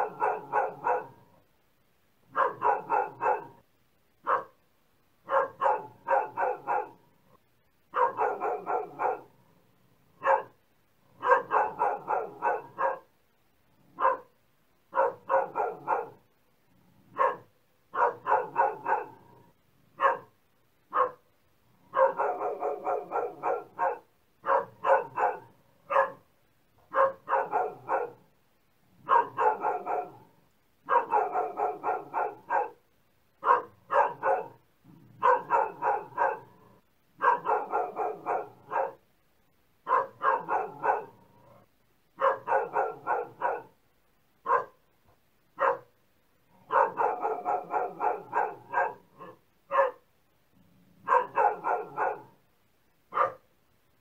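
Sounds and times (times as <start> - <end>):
dog barking: 0.0 - 1.4, 2.3 - 3.6, 4.2 - 4.6, 5.2 - 7.1, 7.9 - 9.4, 10.1 - 13.1, 13.8 - 16.3, 17.1 - 28.3, 29.0 - 32.8, 33.4 - 34.6, 35.2 - 39.0, 39.8 - 43.8, 44.4 - 44.8, 45.6 - 46.0, 46.6 - 50.1, 51.0 - 52.4, 53.1 - 53.5.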